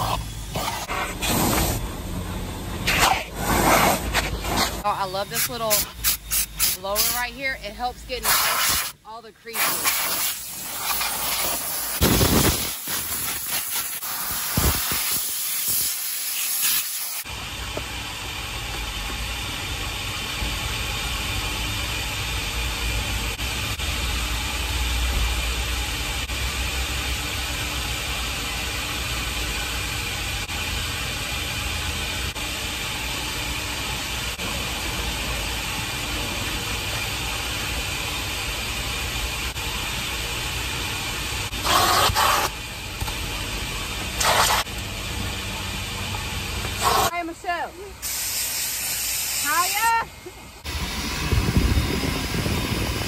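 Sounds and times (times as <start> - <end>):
air blower nozzle hissing blasts: 2.8 - 7.3, 8.2 - 9.0, 9.6 - 17.3, 48.0 - 50.0
steady rushing with low rumble: 50.7 - 53.0.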